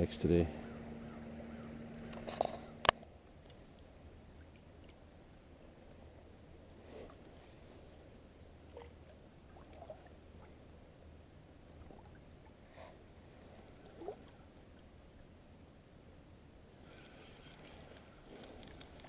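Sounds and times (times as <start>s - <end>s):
faint water plinks: 8.6s - 10.7s.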